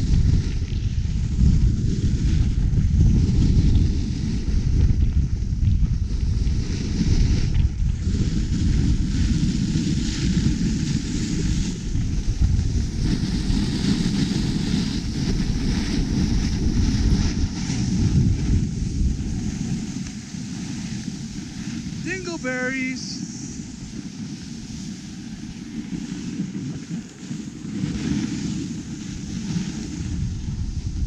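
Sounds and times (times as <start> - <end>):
wind rumbling on microphone: 0.0 - 31.0
hiss of snow sliding: 6.4 - 31.0.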